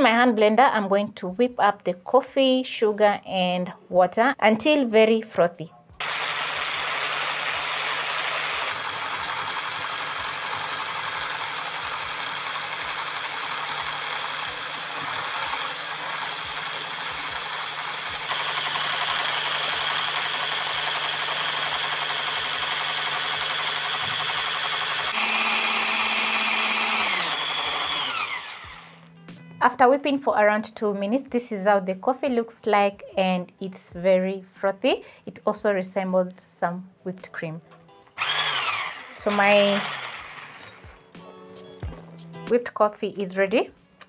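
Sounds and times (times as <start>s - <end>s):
electric hand blender whisking: 6.0s - 29.0s, 38.2s - 40.9s
motor winding down whine: 6.0s - 29.0s, 38.2s - 40.8s.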